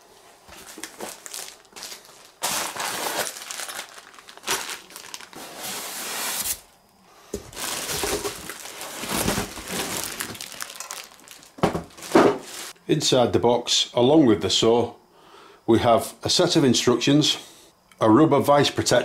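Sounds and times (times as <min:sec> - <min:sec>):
plastic bags crinkling: 0:00.5 - 0:06.5, 0:07.4 - 0:12.8.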